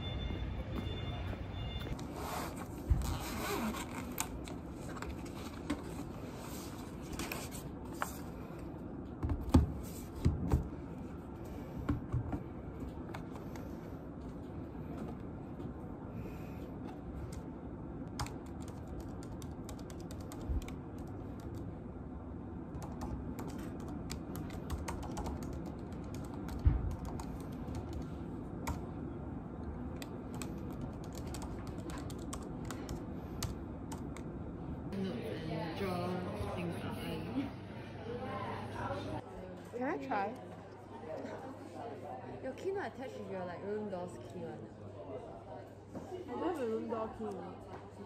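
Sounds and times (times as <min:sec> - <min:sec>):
low room hum: 0:00.0 - 0:48.0
laptop keyboard typing: 0:17.2 - 0:21.7, 0:22.6 - 0:28.9, 0:29.9 - 0:34.3.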